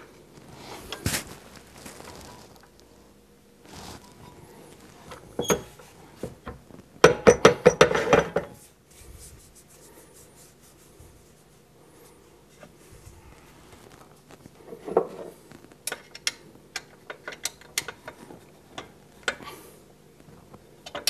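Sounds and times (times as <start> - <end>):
faint handling noise: 0.0 - 7.0, 8.5 - 21.0.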